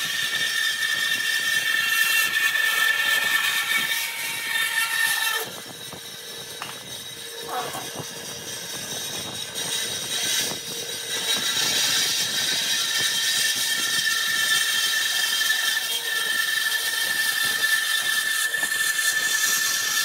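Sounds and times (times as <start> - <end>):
band saw cutting wood: 0.0 - 20.0.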